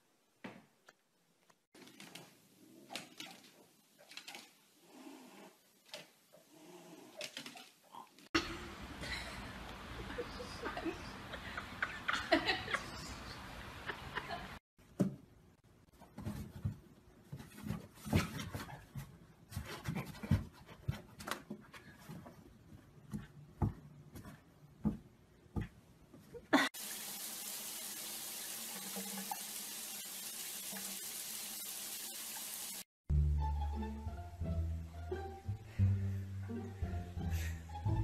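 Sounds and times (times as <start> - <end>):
water running in bathtub: 26.8 - 32.9.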